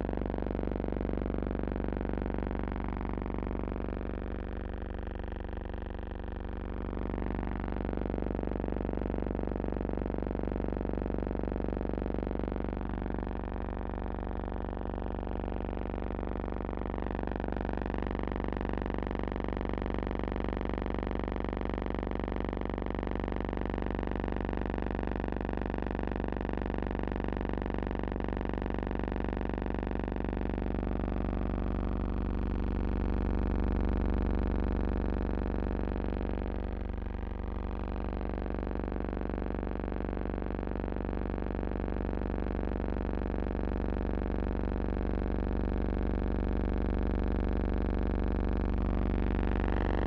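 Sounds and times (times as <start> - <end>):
steady buzzing hum: 0.0 - 50.0.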